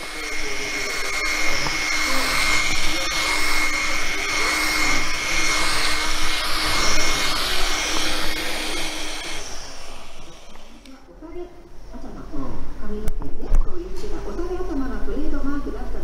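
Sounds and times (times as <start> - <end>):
polisher motor whine: 0.0 - 10.9.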